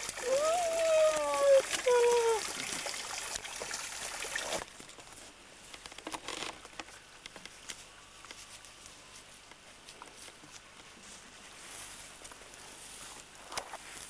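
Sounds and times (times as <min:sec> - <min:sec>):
stream running over stones: 0:00.0 - 0:05.6
faint ticks and rustles: 0:04.6 - 0:14.0.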